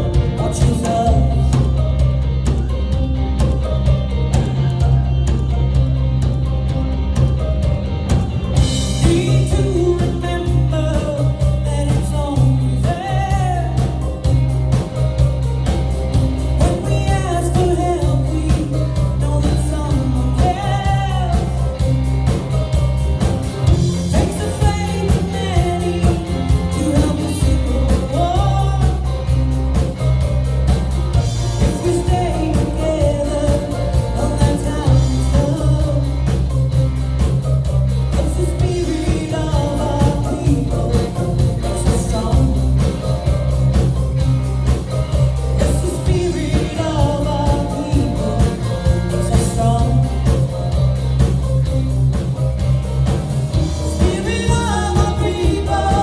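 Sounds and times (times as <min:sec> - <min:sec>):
country band backing with heavy bass: 0:00.0 - 0:56.0
woman singing: 0:00.1 - 0:02.0, 0:08.9 - 0:14.3, 0:16.6 - 0:21.9, 0:23.8 - 0:29.5, 0:31.2 - 0:36.5, 0:38.2 - 0:43.3, 0:45.6 - 0:50.6, 0:53.8 - 0:56.0.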